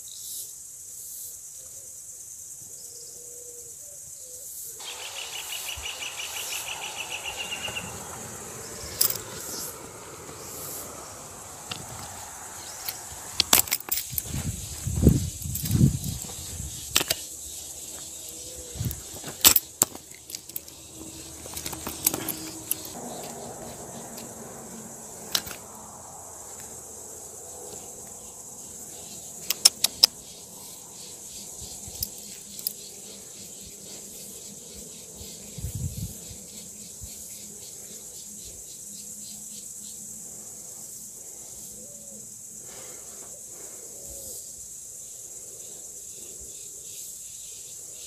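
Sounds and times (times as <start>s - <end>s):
steady high hiss: 4.5s - 21.4s.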